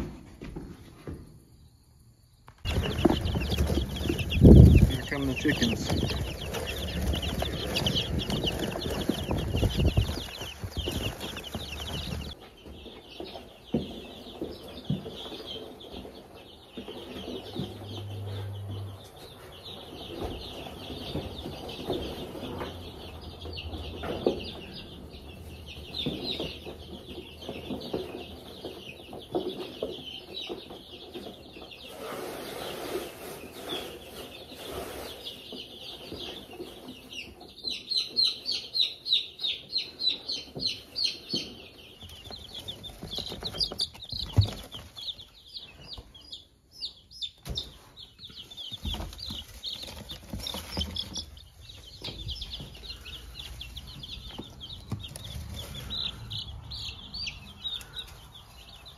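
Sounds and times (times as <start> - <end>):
baby chicks peeping: 0.0 - 58.9
handling knocks and rustles: 2.6 - 18.1, 40.6 - 45.3, 47.4 - 56.1.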